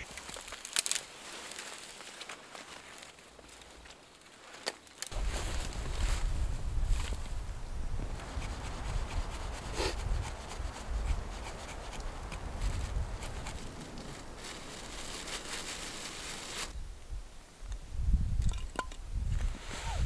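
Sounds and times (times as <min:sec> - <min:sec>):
knife scraping wood: 0:08.1 - 0:13.7.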